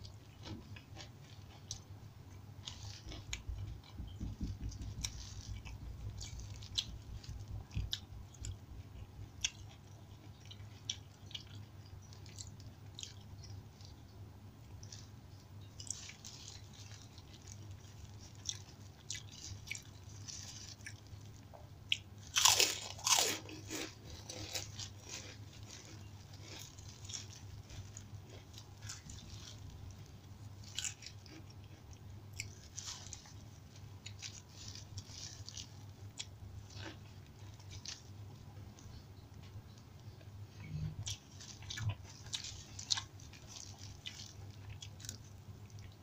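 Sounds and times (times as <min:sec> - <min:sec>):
chewing crisp food: 0:00.0 - 0:46.0.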